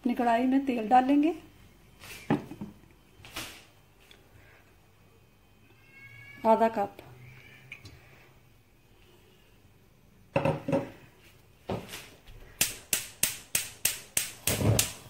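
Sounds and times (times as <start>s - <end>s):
gas stove igniter clicking: 12.6s - 15.0s.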